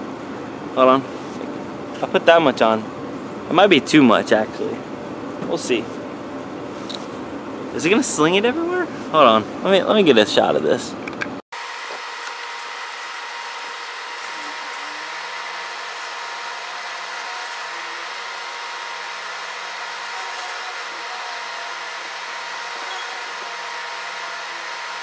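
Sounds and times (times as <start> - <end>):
electric buffer whirring: 11.6 - 25.0.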